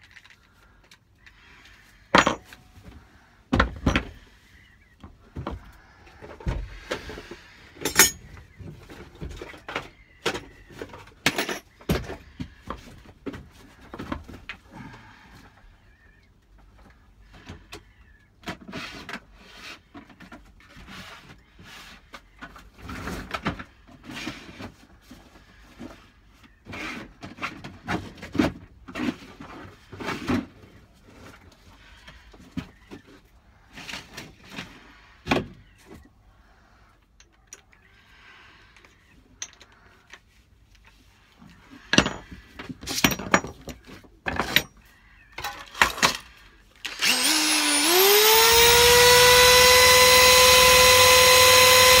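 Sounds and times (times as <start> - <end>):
tools and metal parts clattering: 2.1 - 2.9, 3.5 - 4.3, 7.8 - 12.2, 39.4 - 40.1, 41.8 - 46.3.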